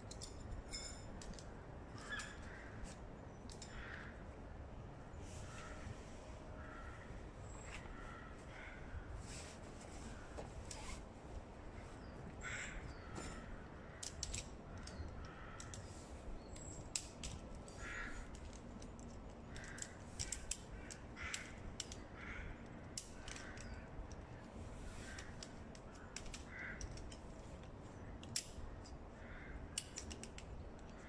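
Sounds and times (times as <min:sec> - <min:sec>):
crows cawing: 0:02.0 - 0:02.9, 0:03.6 - 0:04.3, 0:06.6 - 0:07.2, 0:07.8 - 0:09.1, 0:12.4 - 0:14.1, 0:14.7 - 0:15.9, 0:17.7 - 0:18.4, 0:19.4 - 0:23.9, 0:25.0 - 0:27.0, 0:29.1 - 0:29.7
tent poles clicking: 0:10.5 - 0:11.0, 0:13.9 - 0:31.0.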